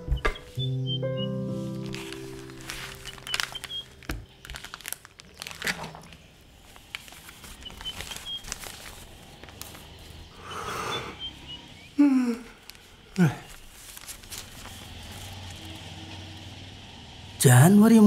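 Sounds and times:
paper rustling and crinkling: 1.5s - 10.3s, 12.6s - 15.9s.

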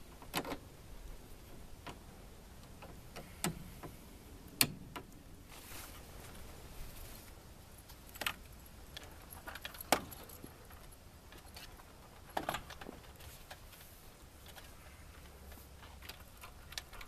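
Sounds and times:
metallic clinks and rattles: 8.5s - 13.2s.

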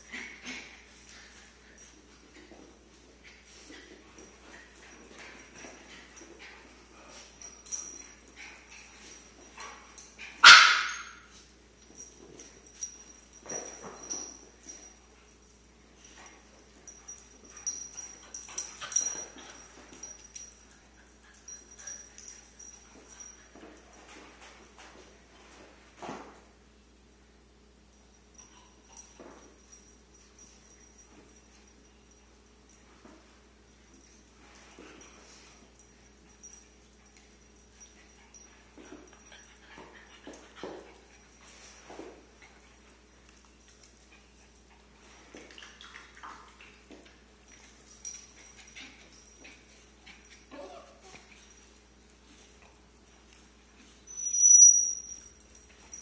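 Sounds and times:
dogs vocalizing while playing: 0.0s - 2.5s, 15.4s - 23.9s, 34.2s - 56.0s
dog whimpers and yips: 49.6s - 51.6s, 54.0s - 56.0s.

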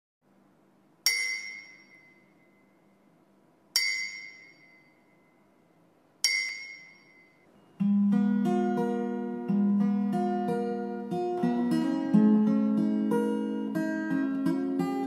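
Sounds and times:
high-pitched chime ringing: 1.1s - 3.1s, 3.8s - 7.8s.

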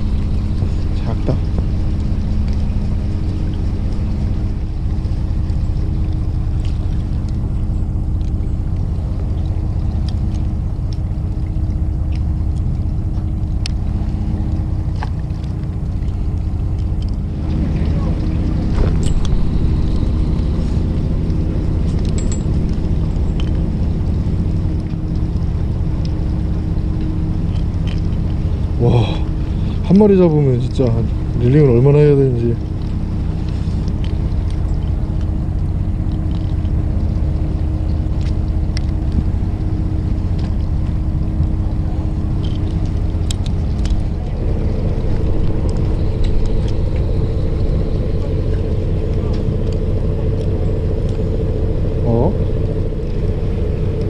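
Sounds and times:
boat engine humming: 0.0s - 54.0s
faint clicks: 42.4s - 44.4s.

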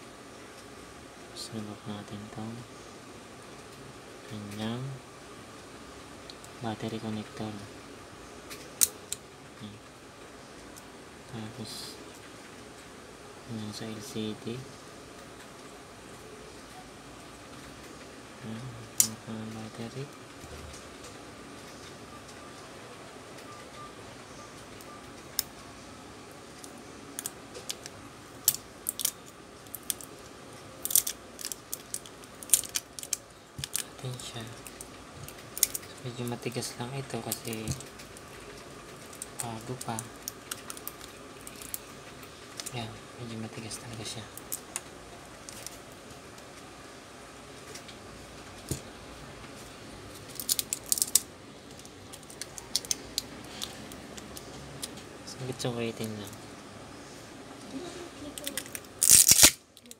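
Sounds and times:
adhesive tab clicking and crackling: 26.6s - 30.2s, 30.8s - 36.0s, 37.3s - 42.8s, 50.1s - 55.0s, 58.4s - 59.9s.

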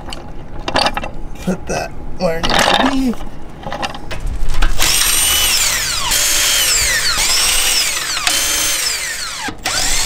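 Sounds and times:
cordless impact wrench whining: 4.8s - 10.0s.

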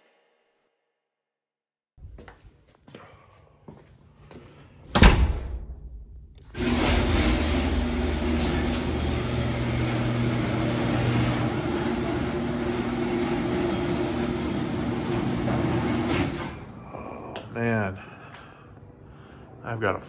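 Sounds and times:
garage door opener motor hum: 6.4s - 16.9s
garage door rollers rumbling: 6.5s - 16.9s.

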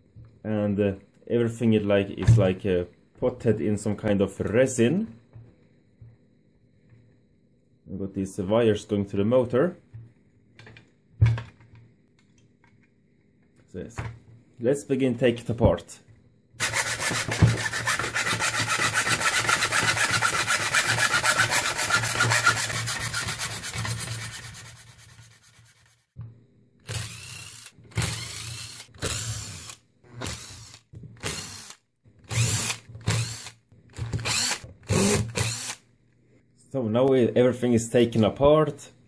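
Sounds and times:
hacksaw rasping through plastic: 16.6s - 25.4s
cordless drill bursts: 26.9s - 35.8s.

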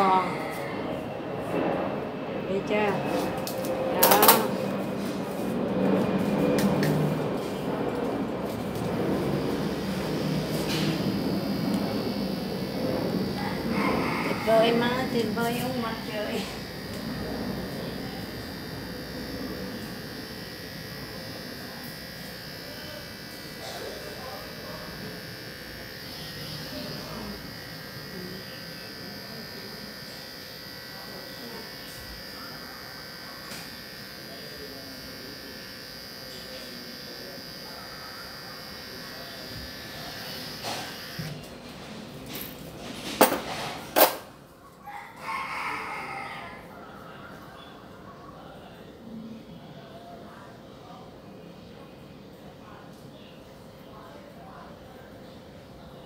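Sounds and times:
machine hum and buzz: 0.0s - 44.2s
high thin whine: 3.0s - 30.3s.

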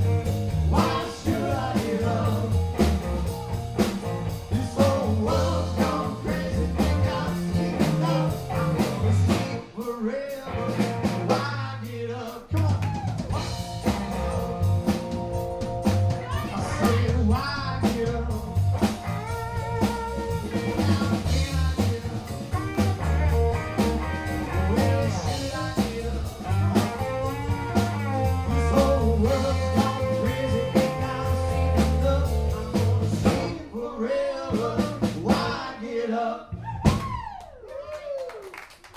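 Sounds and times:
electric guitar: 0.0s - 9.8s, 13.3s - 33.5s
keyboard: 0.0s - 9.8s, 13.3s - 33.6s
drum kit: 0.0s - 11.6s, 12.3s - 33.7s, 34.5s - 35.7s, 36.6s - 37.4s
bass guitar: 0.0s - 35.8s
man singing: 0.5s - 3.0s, 4.3s - 13.6s, 16.3s - 36.5s.

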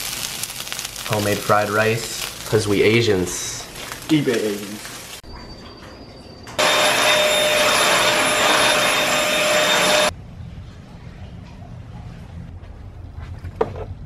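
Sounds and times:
handheld vacuum cleaner running: 6.6s - 10.1s.

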